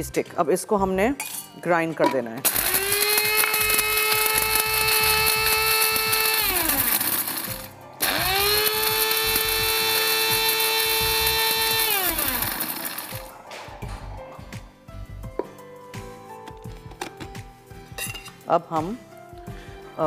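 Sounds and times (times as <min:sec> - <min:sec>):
electric spice grinder whining: 0:02.4 - 0:13.3.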